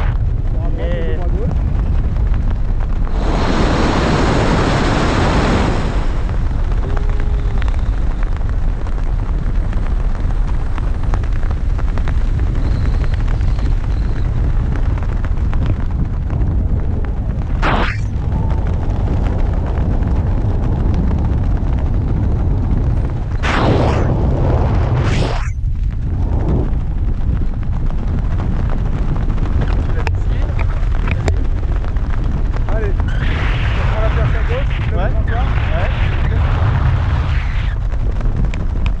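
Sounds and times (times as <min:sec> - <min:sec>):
wind buffeting microphone: 0:00.0 - 0:39.0.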